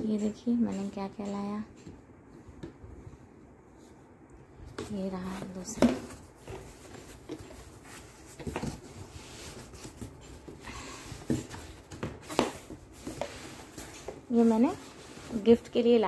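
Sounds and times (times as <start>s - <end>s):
cardboard rustling: 4.7s - 15.9s.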